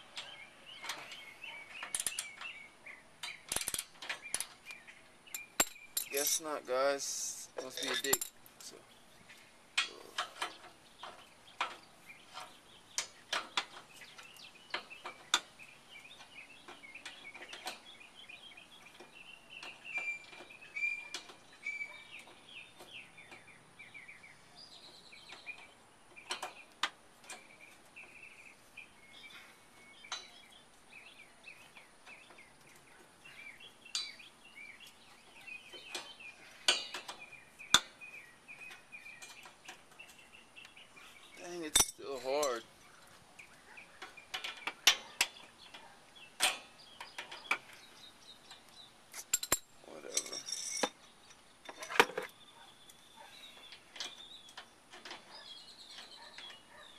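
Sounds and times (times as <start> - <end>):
birds chirping: 0.0 - 56.9
wrench clinking on metal bolts: 0.2 - 2.6, 3.2 - 4.6, 5.3 - 6.6, 7.6 - 8.5, 33.9 - 34.2, 35.8 - 37.9, 41.4 - 42.6, 46.4 - 47.7, 49.1 - 51.0.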